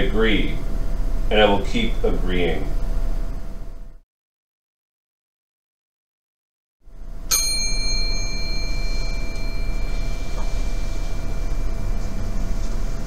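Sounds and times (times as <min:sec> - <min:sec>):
low electrical hum: 0:00.0 - 0:04.0, 0:06.9 - 0:13.0
bell-like ding: 0:07.3 - 0:12.0.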